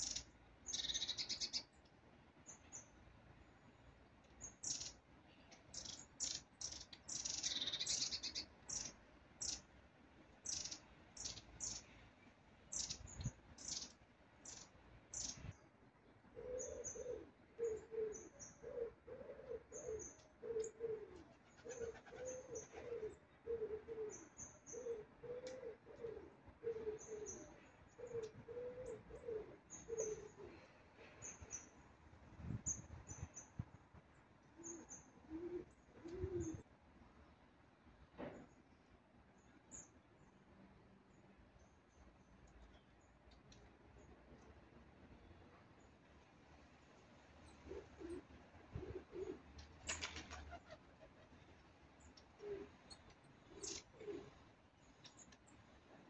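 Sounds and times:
small birds calling with trills: 0.0 - 3.6, 4.2 - 36.7, 38.4 - 55.9
pigeon cooing: 16.3 - 30.7, 34.6 - 36.6, 47.6 - 49.5, 52.4 - 52.8, 53.4 - 54.4.

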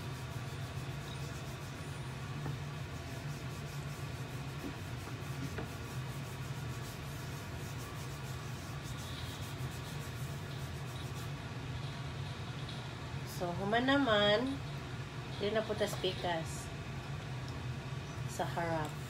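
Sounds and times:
hands rubbing salt into meat: 0.0 - 11.4.

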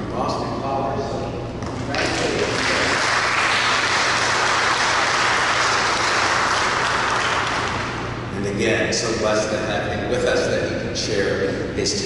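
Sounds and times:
congregation applauding: 1.8 - 8.2.

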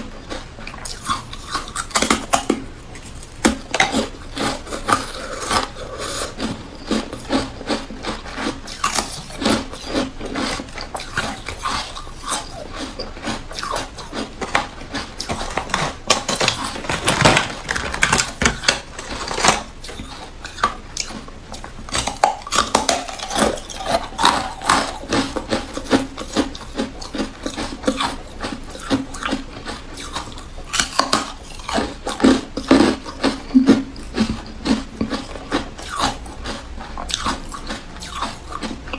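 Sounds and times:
ice sticks crunching: 0.8 - 21.2, 21.9 - 28.1
ice clattering on plastic tray: 14.4 - 19.7.

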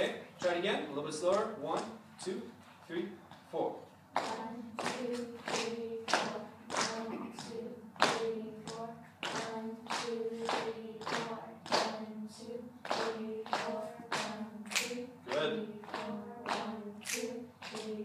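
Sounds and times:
group singing in unison: 4.2 - 18.0.

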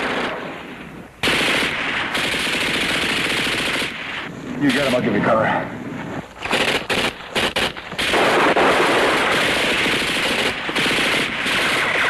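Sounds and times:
rapid automatic gunfire: 1.2 - 5.0, 6.4 - 12.0.

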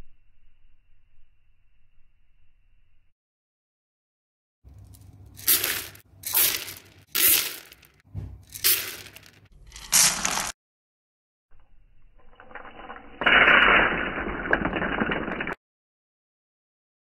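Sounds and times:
coffee beans crashing and scattering: 4.7 - 10.6, 12.2 - 15.6.

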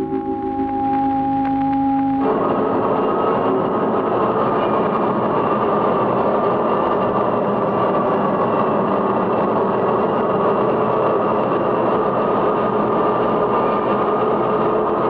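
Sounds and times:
machinery drone with hiss: 0.0 - 7.6.

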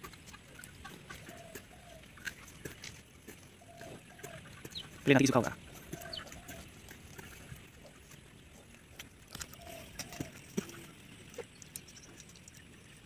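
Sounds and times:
hen clucking: 0.0 - 2.8, 3.4 - 8.0, 9.5 - 11.6.

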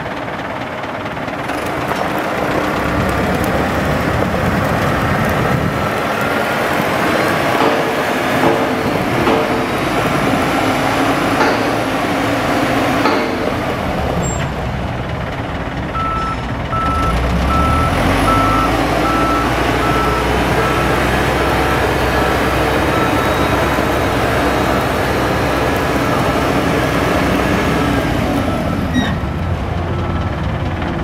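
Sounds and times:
diesel engine under load: 0.0 - 31.0
backup alarm beeping: 16.0 - 21.0.

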